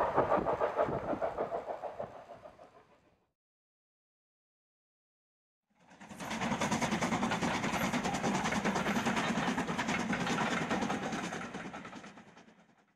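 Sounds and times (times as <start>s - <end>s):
steam train running: 0.0s - 2.8s, 6.0s - 12.6s.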